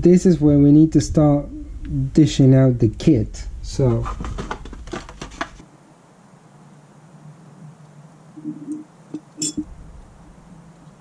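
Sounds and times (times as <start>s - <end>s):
faint steady hiss: 0.0s - 11.0s
low hum: 5.8s - 11.0s.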